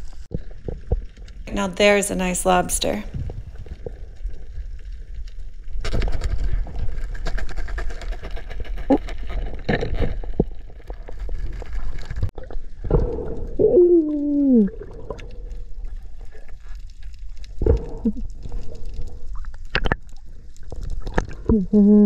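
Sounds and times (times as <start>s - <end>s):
low moan falling in pitch: 21.5s - 22.0s.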